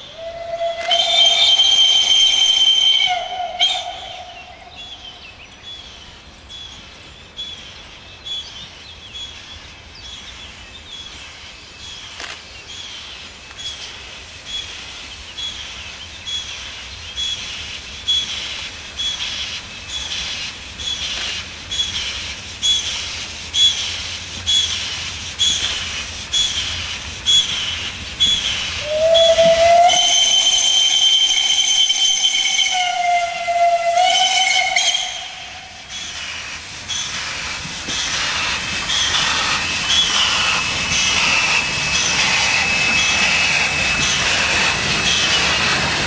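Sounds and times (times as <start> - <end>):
steam locomotive whistle: 0.0 - 4.6, 28.2 - 35.9
steam locomotive exhaust beats: 0.0 - 5.1, 12.8 - 46.0.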